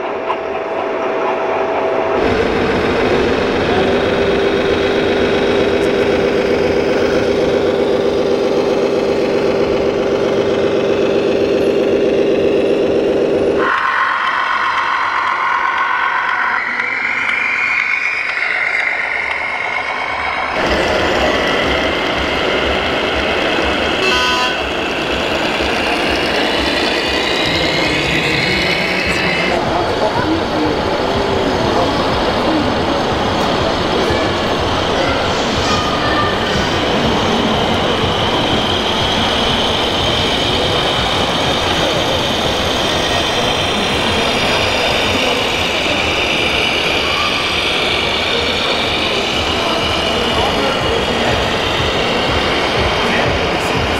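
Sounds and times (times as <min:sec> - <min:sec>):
engine-like low pulsing sound: 0:00.0 - 0:53.9
rc truck motor whine: 0:02.2 - 0:53.9.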